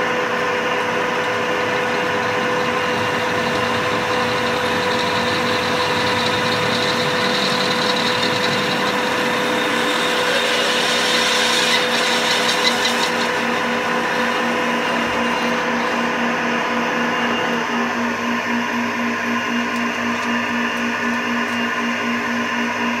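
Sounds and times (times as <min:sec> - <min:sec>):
lathe motor and gear whine: 0:00.0 - 0:23.0.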